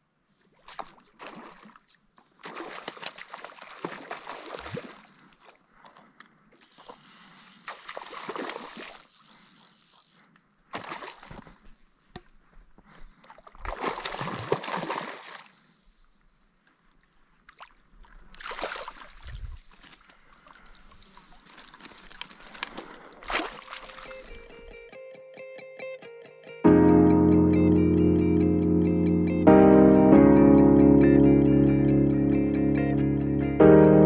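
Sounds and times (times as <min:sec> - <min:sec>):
water sloshing and splashing: 0:00.5 - 0:10.0, 0:10.7 - 0:11.8, 0:13.1 - 0:15.6, 0:17.0 - 0:24.6.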